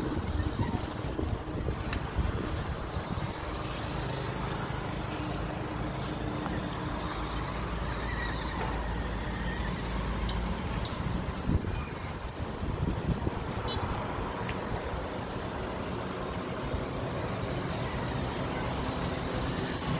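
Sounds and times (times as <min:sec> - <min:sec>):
wind buffeting microphone: 0:00.0 - 0:04.9, 0:10.4 - 0:16.0.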